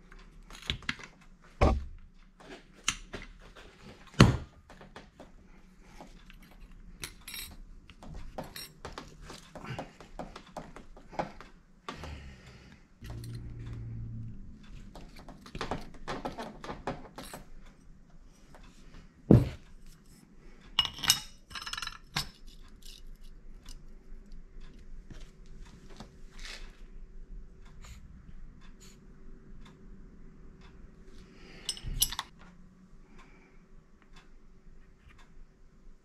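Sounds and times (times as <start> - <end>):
metal parts clinking and knocking: 6.4 - 9.4, 13.0 - 13.6, 15.0 - 17.5, 20.8 - 23.8, 31.6 - 32.3.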